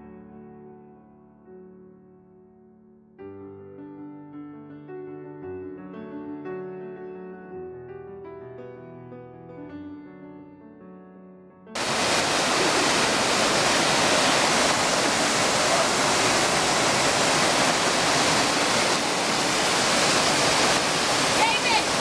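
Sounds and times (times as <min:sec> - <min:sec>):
quiet piano music: 0:00.0 - 0:11.8
waterfall rushing over boulders: 0:11.8 - 0:22.0.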